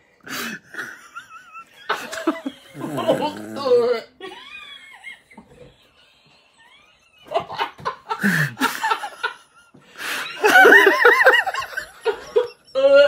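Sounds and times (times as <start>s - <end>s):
high-pitched laughter: 0.8s - 9.5s, 10.4s - 13.0s
breathy snickers: 1.9s - 4.0s
man groaning: 2.7s - 4.1s.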